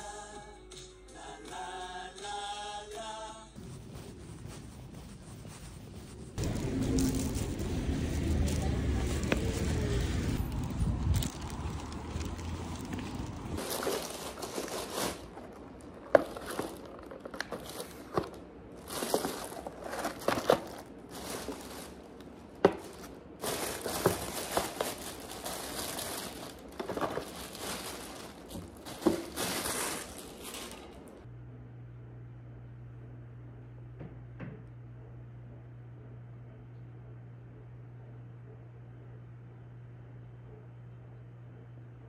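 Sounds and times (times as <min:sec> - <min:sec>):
low steady rumble: 0:03.6 - 0:13.6
plastic bag crinkling: 0:06.4 - 0:31.2.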